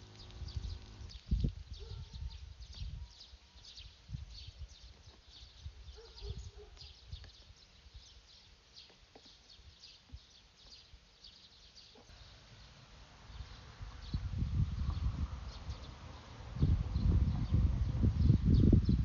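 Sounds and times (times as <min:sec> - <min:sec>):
low rumbling wind: 0:00.0 - 0:08.2, 0:12.2 - 0:19.0.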